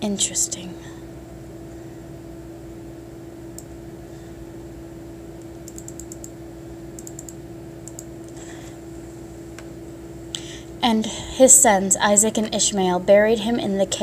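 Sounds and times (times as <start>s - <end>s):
steady low hum: 0.0s - 14.0s
mouse scroll clicks: 5.7s - 6.3s, 7.0s - 8.1s.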